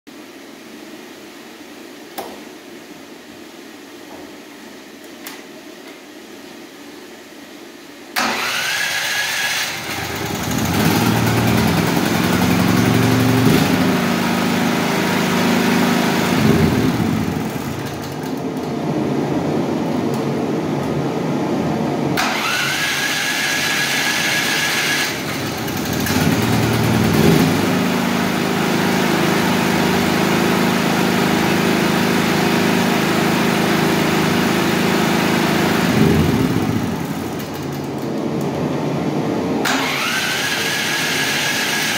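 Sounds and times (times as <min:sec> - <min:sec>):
electric starter whining: 0:08.2 - 0:18.8, 0:22.2 - 0:38.5, 0:39.6 - 0:41.9
generator engine running: 0:08.2 - 0:41.9.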